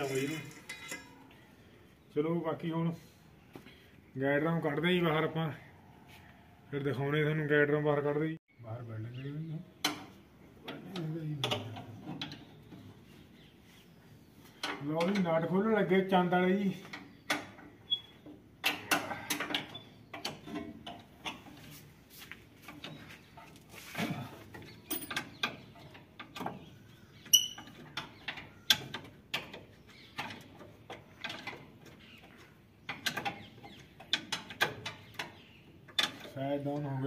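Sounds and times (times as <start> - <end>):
spanner clinking on bolts: 0.0 - 1.4, 24.5 - 26.6.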